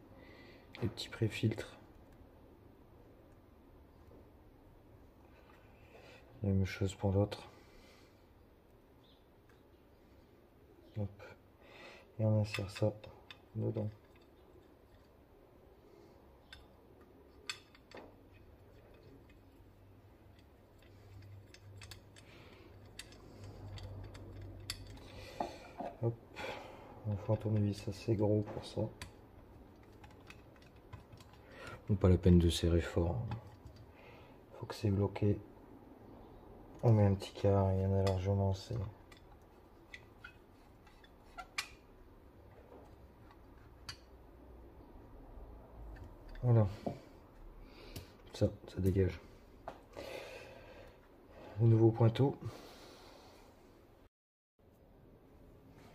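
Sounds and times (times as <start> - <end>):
low steady hum: 0.0 - 55.9
small metal parts clicking: 12.4 - 15.2, 16.4 - 25.3, 27.2 - 31.9.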